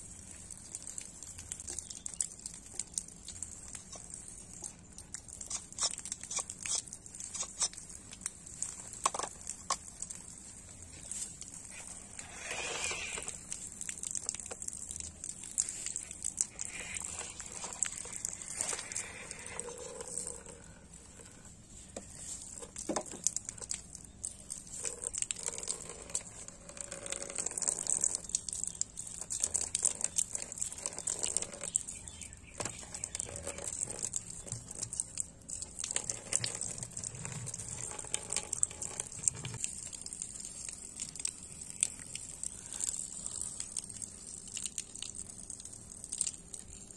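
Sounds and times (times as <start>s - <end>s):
crackles: 0.0s - 46.9s
water trickling onto plastic: 0.0s - 46.9s
steady high hiss: 10.4s - 13.7s.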